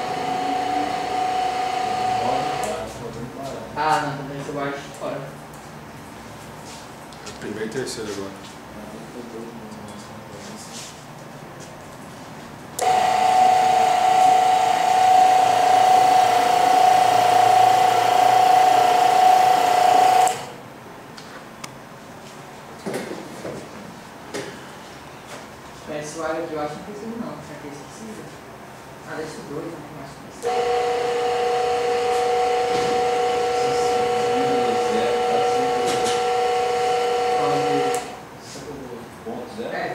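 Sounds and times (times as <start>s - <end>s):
small electric motor whine: 0.0s - 2.8s, 12.8s - 20.6s, 30.4s - 38.2s.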